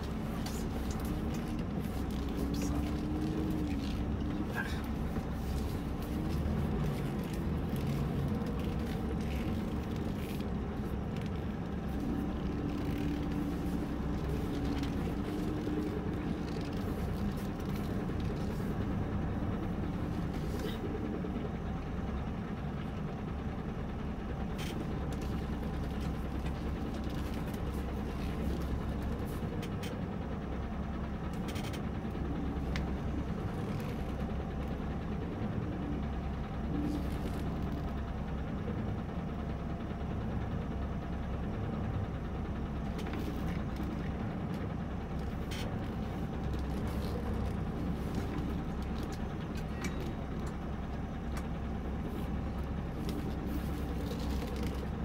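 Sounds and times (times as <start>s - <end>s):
diesel truck engine running: 0.0s - 55.0s.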